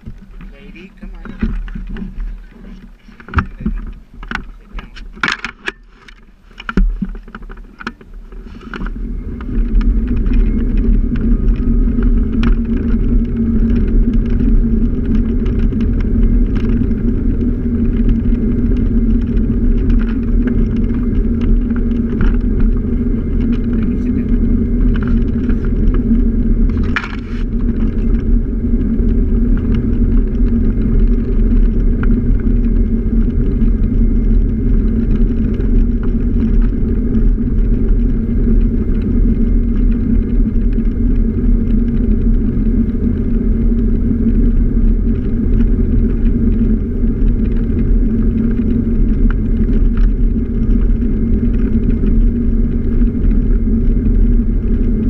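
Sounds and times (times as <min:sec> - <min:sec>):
clicks and rattles: 0:00.0 - 0:28.4
road and wind noise: 0:00.0 - 0:55.0
scooter engine drone: 0:00.0 - 0:55.0.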